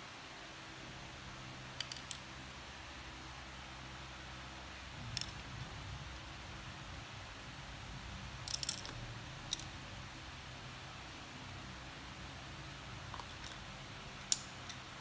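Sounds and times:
wooden pencils clicking: 0:01.8 - 0:02.2, 0:08.4 - 0:09.7, 0:14.2 - 0:14.9.

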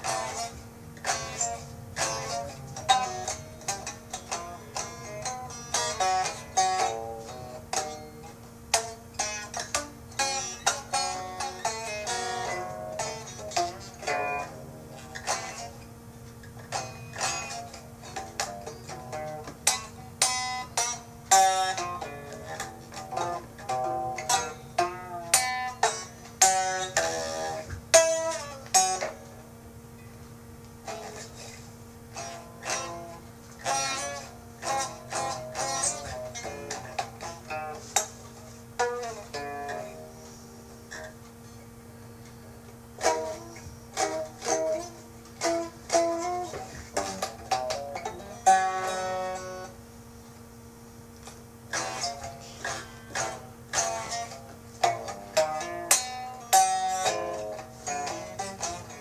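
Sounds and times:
plucked string instrument notes: 0:00.0 - 0:49.8, 0:51.2 - 0:59.0
faint steady hum: 0:00.0 - 0:59.0.

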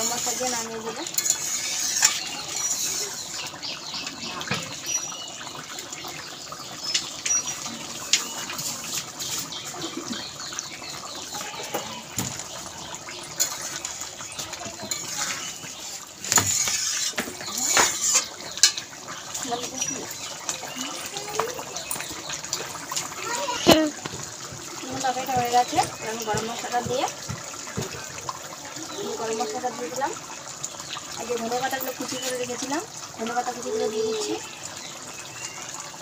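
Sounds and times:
spatula scraping a steel pan: 0:00.0 - 0:03.5, 0:07.2 - 0:09.7, 0:14.7 - 0:18.8
curry simmering and bubbling: 0:00.0 - 0:36.0.

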